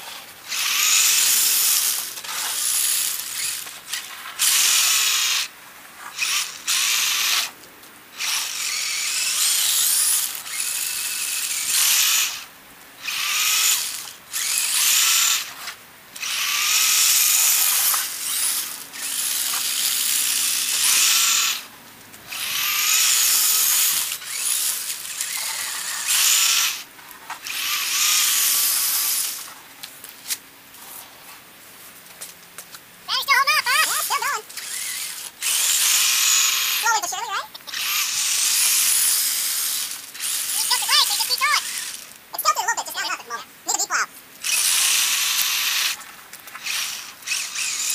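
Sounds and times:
electric motor whining: 0.0s - 5.5s, 6.1s - 21.7s, 22.3s - 29.6s, 33.4s - 42.1s, 44.4s - 47.9s.

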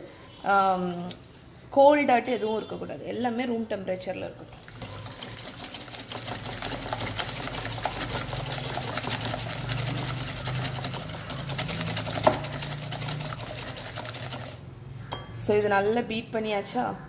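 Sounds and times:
whisk clattering against glass bowl: 4.6s - 15.3s.

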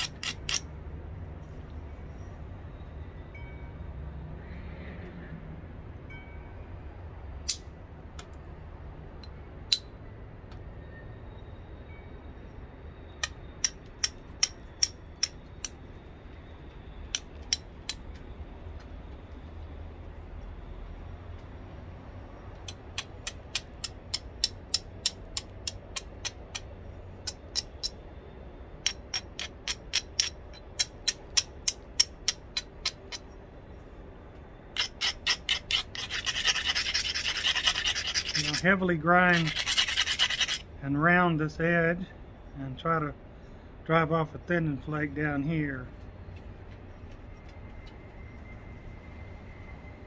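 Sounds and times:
stone scratching along edge: 0.0s - 0.7s, 34.8s - 40.6s
copper bar tapping stone: 22.7s - 28.0s, 28.8s - 33.2s.

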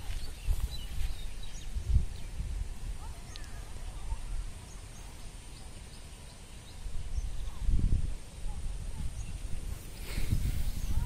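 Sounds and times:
wind rumble on microphone: 0.0s - 5.0s, 6.6s - 11.0s
faint bird chirps: 0.0s - 7.8s.

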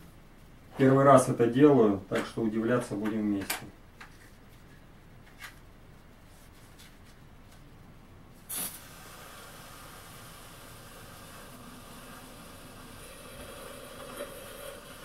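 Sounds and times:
gas hissing: 8.4s - 15.0s
burst of gas: 8.5s - 15.0s.

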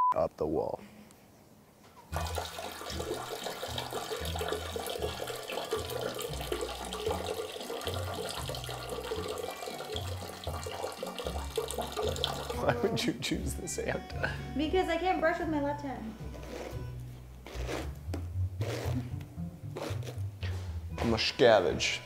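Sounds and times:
tap water splashing into basin: 2.1s - 12.6s.

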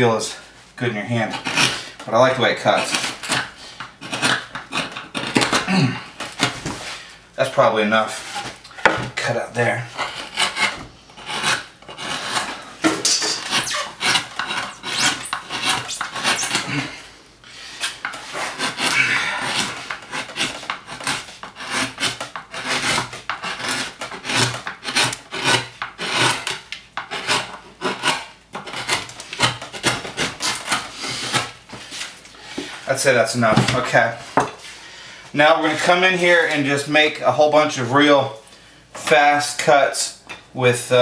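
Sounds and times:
gouge scraping wood: 1.1s - 7.0s, 9.6s - 32.8s.

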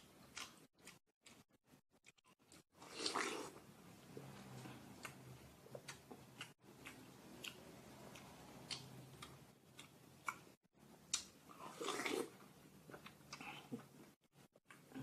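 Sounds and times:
person chewing wetly: 4.9s - 13.6s.

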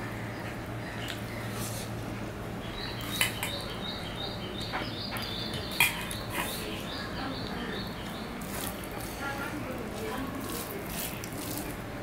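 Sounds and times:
bird chirping: 2.6s - 8.5s.

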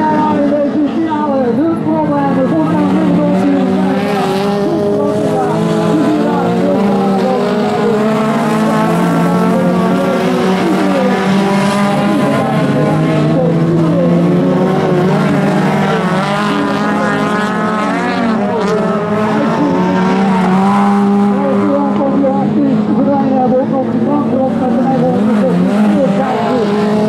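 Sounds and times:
race car engines revving: 0.0s - 27.0s.

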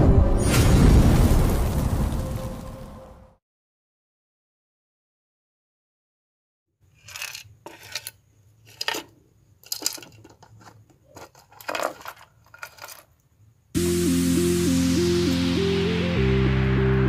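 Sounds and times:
components clinking on wooden table: 6.9s - 13.2s.

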